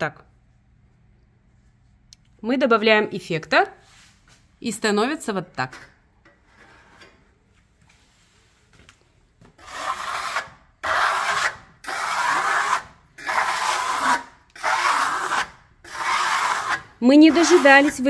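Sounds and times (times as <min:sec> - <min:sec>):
trowel scraping plaster: 0:09.6 - 0:18.0.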